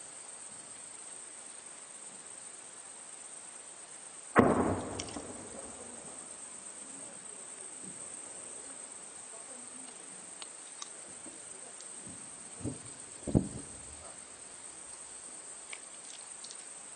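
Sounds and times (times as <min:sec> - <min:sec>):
distant artillery explosion: 0:04.4 - 0:06.5, 0:12.6 - 0:14.1.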